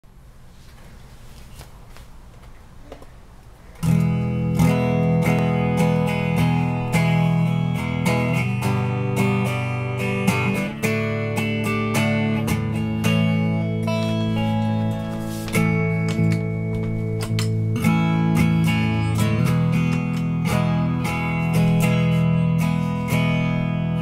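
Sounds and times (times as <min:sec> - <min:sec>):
guitar strummed through effects: 0:03.8 - 0:24.0.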